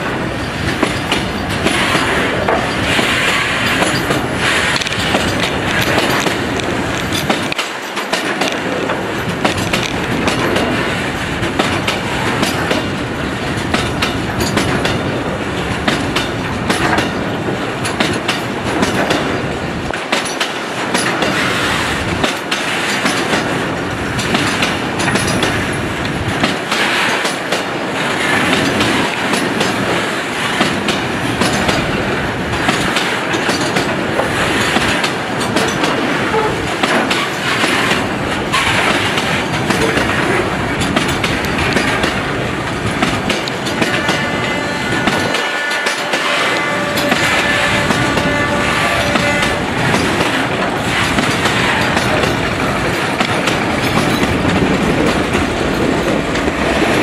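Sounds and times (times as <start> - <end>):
train wheels clattering over rails: 0.0 - 57.0.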